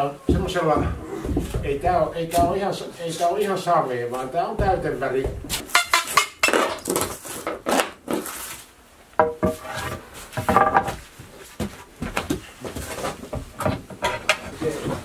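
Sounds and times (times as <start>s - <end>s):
hammer and pry bar knocking wood: 4.6s - 6.7s.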